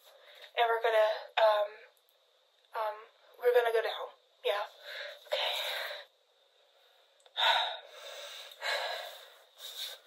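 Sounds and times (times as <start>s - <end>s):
person gasping breaths: 7.4s - 10.0s.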